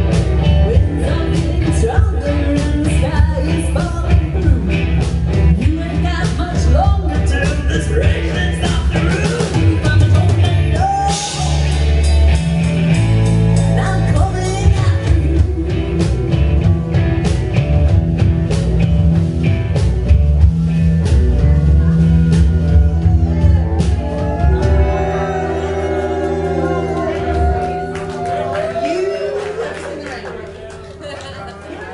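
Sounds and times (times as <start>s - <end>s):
drum kit beating: 0.0s - 30.6s
live rock band playing: 0.0s - 31.9s
woman singing: 0.6s - 4.9s, 5.6s - 11.3s, 13.8s - 16.4s.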